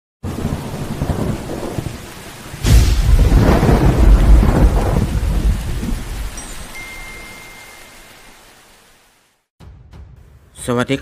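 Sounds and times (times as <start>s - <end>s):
thunderclap and rolling rumble: 0.2s - 6.4s
steady rain: 0.2s - 9.5s.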